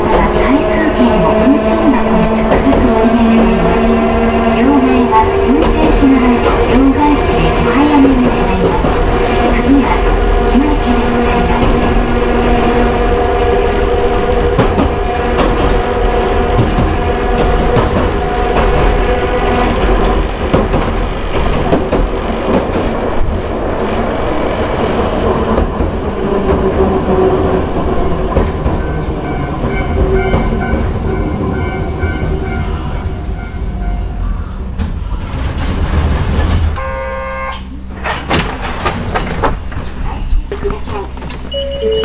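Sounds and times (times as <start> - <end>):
tram traction motor hum: 0.0 - 42.0
high steady tone: 41.5 - 42.0.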